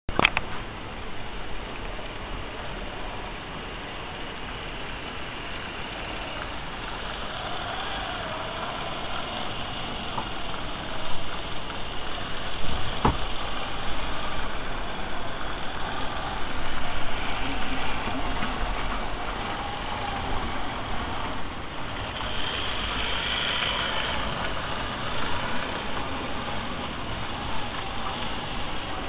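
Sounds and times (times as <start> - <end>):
sharp click: 0.2 - 0.5
model train motor whirring: 1.0 - 29.0.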